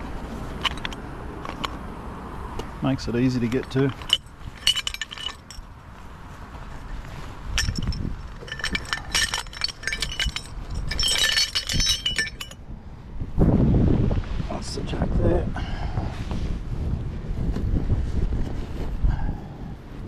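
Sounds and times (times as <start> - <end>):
metal tubes clanking: 0.6 - 1.7, 3.3 - 5.7, 7.6 - 12.6
wind buffeting microphone: 3.0 - 20.0.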